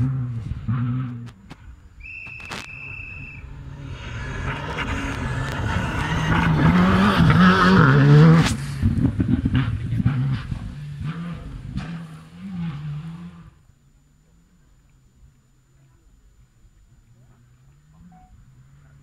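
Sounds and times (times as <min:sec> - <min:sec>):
rally car engine passing: 0:00.0 - 0:01.4, 0:02.8 - 0:13.7
high steady tone: 0:02.0 - 0:07.9, 0:13.7 - 0:18.8.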